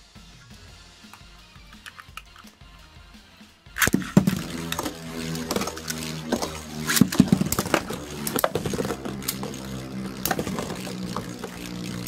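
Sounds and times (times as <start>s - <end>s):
spinning tops clicking: 3.8s - 12.0s
spinning tops whirring: 3.8s - 12.0s.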